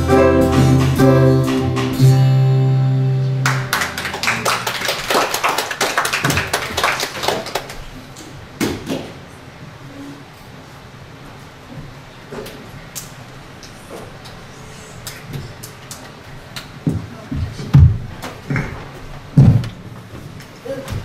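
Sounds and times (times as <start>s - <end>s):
acoustic guitar chord ringing: 0.0s - 4.2s
congregation applauding: 3.4s - 7.9s.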